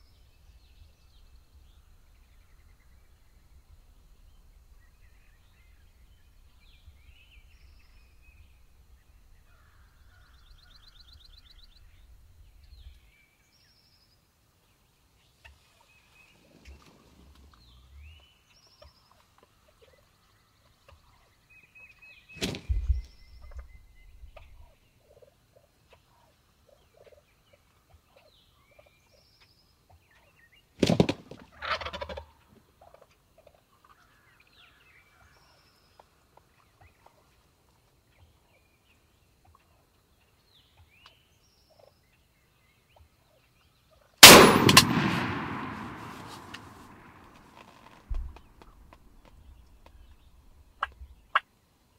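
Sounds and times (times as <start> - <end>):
turkeys gobbling: 31.5 - 34.0
shotgun blast: 44.2 - 47.3.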